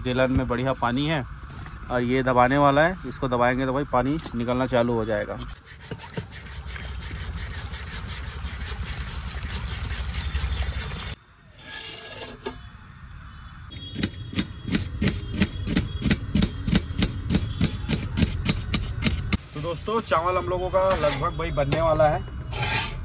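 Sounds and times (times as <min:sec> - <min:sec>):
water pouring into a steel pot: 0:08.2 - 0:11.2.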